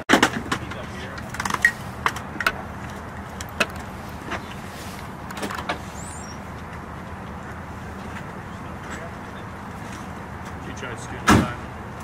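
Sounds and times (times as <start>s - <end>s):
fire engine idling: 0.5s - 12.0s.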